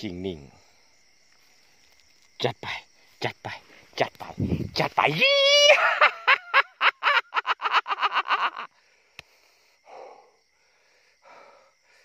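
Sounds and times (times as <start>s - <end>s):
man shouting rhythmic syllables: 2.4s - 5.8s
heavy breathing: 8.7s - 12.0s
click: 9.1s - 9.3s.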